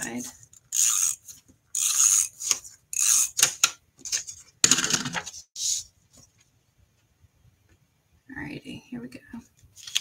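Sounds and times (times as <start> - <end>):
paper rustling: 9.7 - 10.0.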